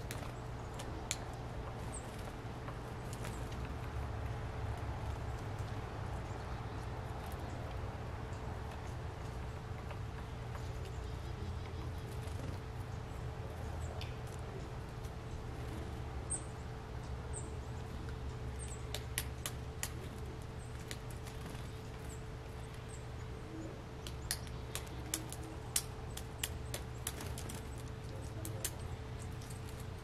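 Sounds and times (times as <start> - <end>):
faint hum: 0.0 - 30.0
bird chips: 18.0 - 30.0.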